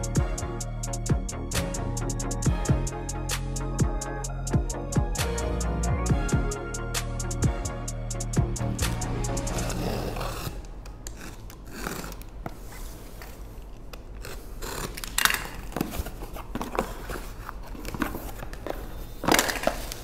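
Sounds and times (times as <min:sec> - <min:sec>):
cutter scraping packing tape: 0:08.9 - 0:18.0
contents handled: 0:08.9 - 0:20.0.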